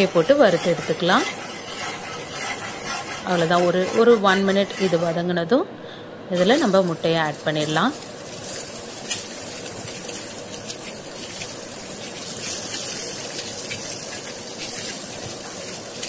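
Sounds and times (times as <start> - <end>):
oil sizzling in a frying pan: 6.4 - 16.0.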